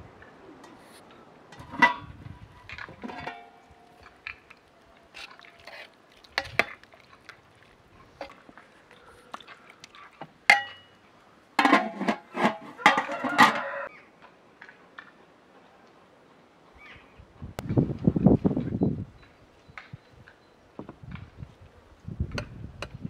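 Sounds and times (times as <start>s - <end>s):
metal ladle clinking on pot: 3.0s - 4.0s, 10.5s - 10.9s.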